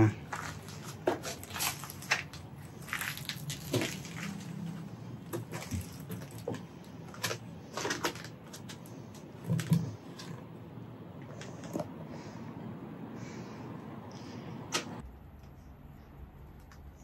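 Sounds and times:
charred debris crunching: 0.1 - 10.3.

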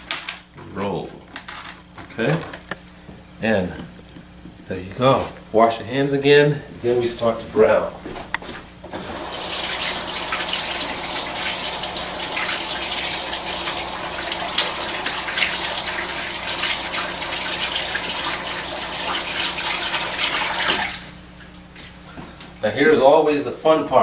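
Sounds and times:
tap water running over hands: 8.9 - 21.9.

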